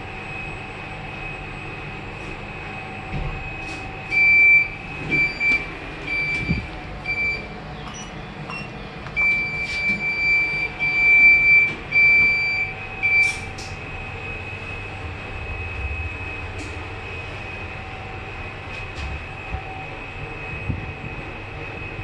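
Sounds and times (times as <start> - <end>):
lift button panel beeping: 4.1 - 13.8
steady faint whine: 9.2 - 22.0.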